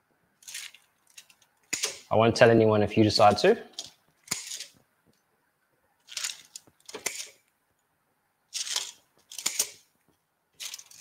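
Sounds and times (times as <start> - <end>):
scissors snipping skewers: 3.8 - 4.7, 6.1 - 7.4, 8.6 - 9.8.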